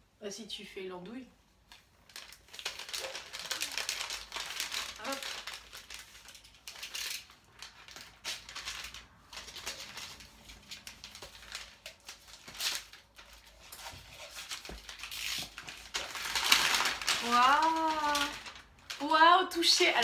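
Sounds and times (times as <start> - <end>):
paper bag crinkling: 1.7 - 20.0
cardboard box tape scratching: 7.9 - 18.5.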